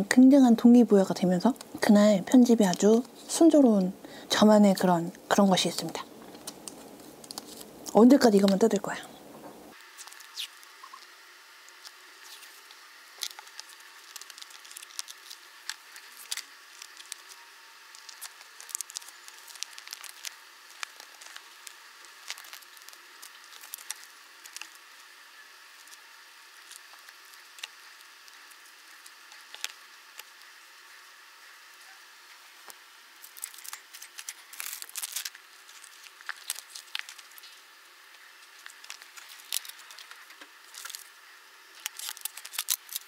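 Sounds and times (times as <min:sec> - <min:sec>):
stickers peeling off paper: 0:06.2 - 0:08.8, 0:09.7 - 0:31.0, 0:32.5 - 0:43.0.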